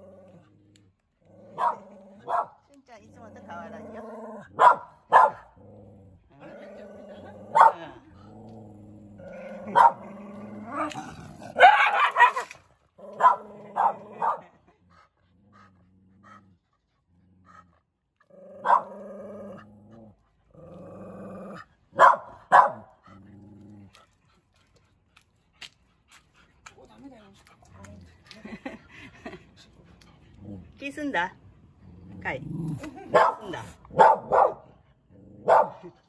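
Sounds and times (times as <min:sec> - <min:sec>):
dogs growling: 0:00.0 - 0:02.4, 0:03.0 - 0:04.8, 0:05.4 - 0:11.7, 0:12.9 - 0:22.1, 0:22.7 - 0:24.8, 0:27.4 - 0:30.9, 0:31.6 - 0:35.7
dogs barking sharply: 0:01.5 - 0:02.6, 0:04.5 - 0:05.6, 0:07.5 - 0:07.8, 0:09.7 - 0:10.0, 0:11.5 - 0:14.5, 0:18.6 - 0:19.0, 0:22.0 - 0:23.0, 0:33.1 - 0:34.7, 0:35.4 - 0:35.8.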